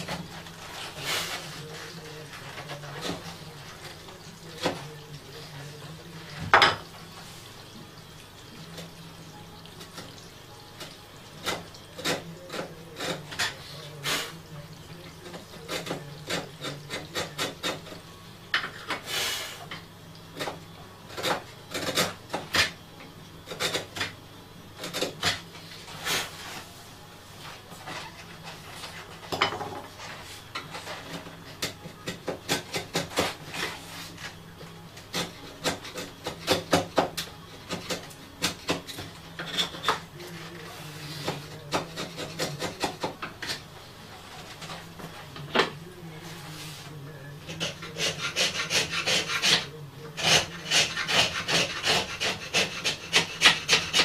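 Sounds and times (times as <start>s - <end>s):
hand file on wood: 40.7s - 43.0s, 47.4s - 54.0s.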